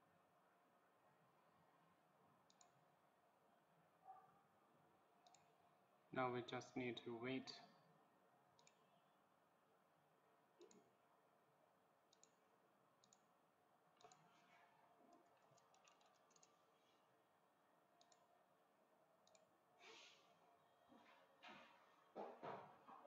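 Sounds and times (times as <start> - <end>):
computer mouse clicks: 2.4 - 2.8, 5.2 - 5.5, 8.6 - 8.8, 10.6 - 10.9, 12.1 - 12.4, 13.0 - 13.3, 14.0 - 14.3, 15.1 - 16.6, 18.0 - 18.3, 19.2 - 19.5.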